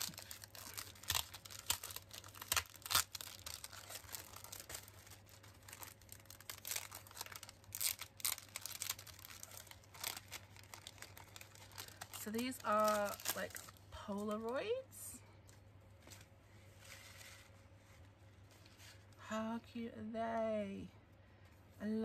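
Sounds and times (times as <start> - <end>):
plastic packaging crinkling: 0.0 - 14.8.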